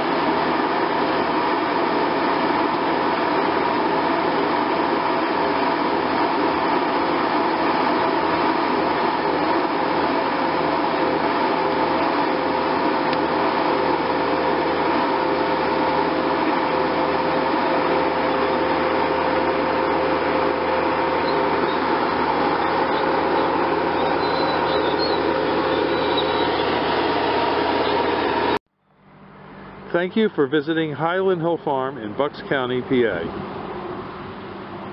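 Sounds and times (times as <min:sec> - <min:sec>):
loader engine drone: 0:00.0 - 0:34.9
steady humming tones: 0:00.0 - 0:34.9.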